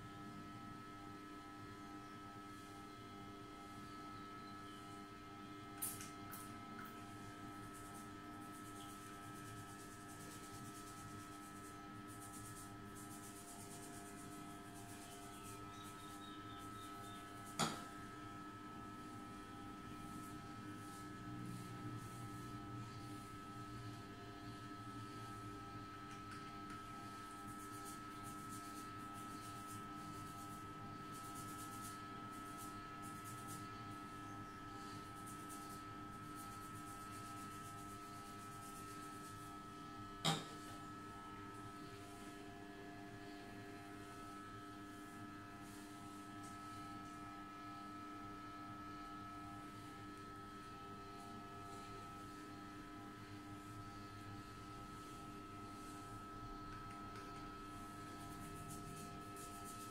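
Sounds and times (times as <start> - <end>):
steady hum: 0.0 - 59.9
fingertips rubbing wet hair: 8.7 - 16.1.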